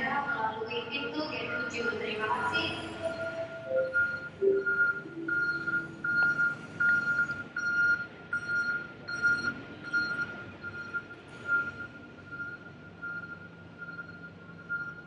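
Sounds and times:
public address chime: 0:00.0 - 0:06.7
repeating electronic beep: 0:01.4 - 0:08.0.

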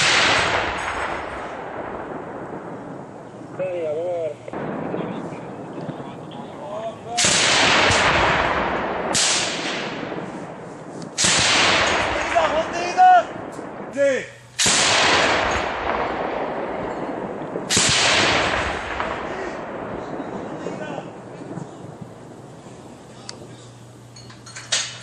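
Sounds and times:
heavy gun shots with echo: 0:00.0 - 0:03.1, 0:04.5 - 0:05.6, 0:07.1 - 0:21.6.

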